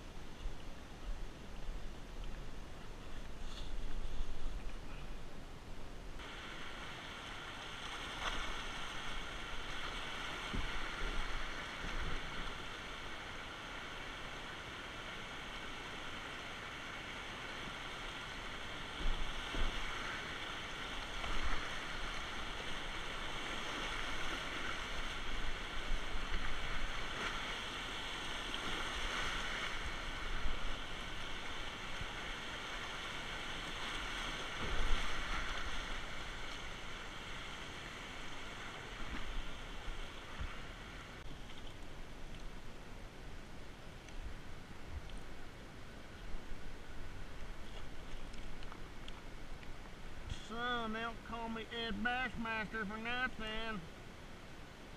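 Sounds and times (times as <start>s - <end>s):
whitewater rapids rushing: 6.2s - 41.2s
paddle splashing against hull: 7.7s - 12.9s, 18.8s - 37.0s.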